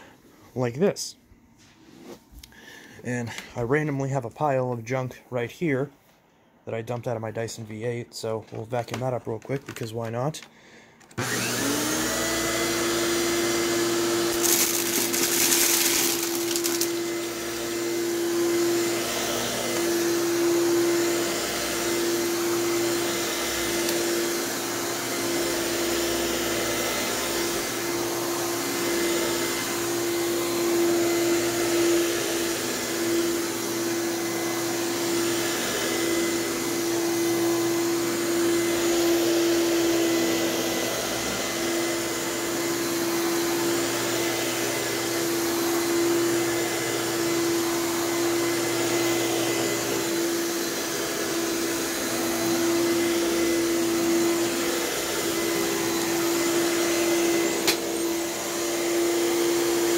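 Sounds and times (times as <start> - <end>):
vacuum cleaner motor whining: 10.4 - 59.9
vacuum sucking up debris: 13.1 - 25.8.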